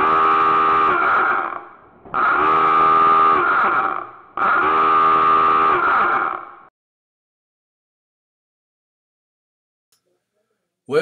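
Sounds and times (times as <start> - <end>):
klaxon horn blasts: 0.0 - 6.7.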